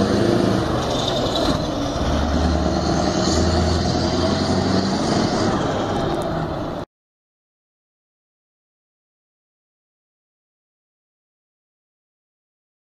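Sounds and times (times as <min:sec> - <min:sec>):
truck engine driving past: 0:00.0 - 0:06.9.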